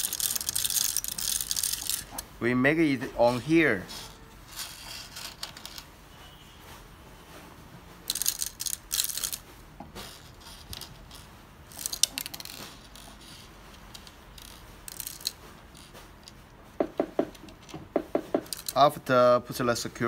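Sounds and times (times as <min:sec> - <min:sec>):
steel screws clicking and clinking: 0:00.0 - 0:02.2, 0:08.1 - 0:09.4, 0:10.1 - 0:16.4, 0:18.4 - 0:19.0.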